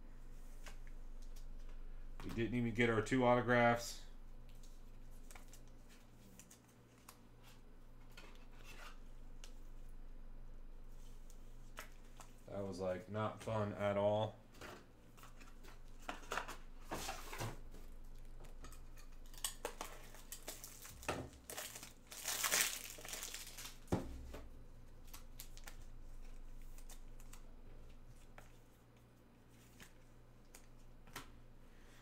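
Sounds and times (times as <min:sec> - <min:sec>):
plastic packaging crinkling: 0:19.3 - 0:23.9.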